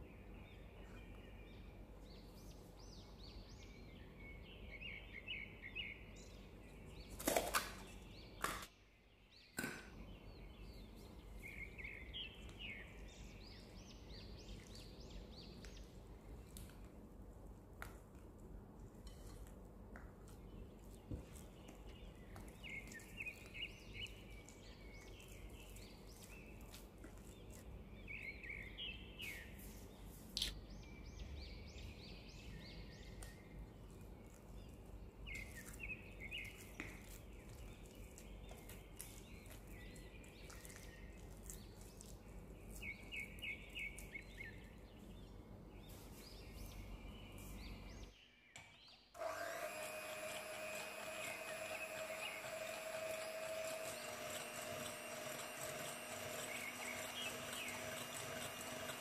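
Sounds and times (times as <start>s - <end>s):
electric hand mixer whine: 49.1s - 59.0s.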